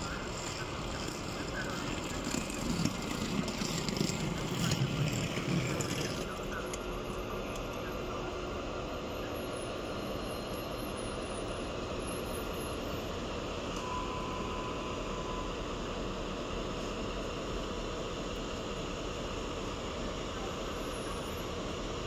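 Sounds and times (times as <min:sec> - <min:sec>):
diesel locomotive running: 0:00.0 - 0:22.0
faint high tone: 0:13.7 - 0:15.7.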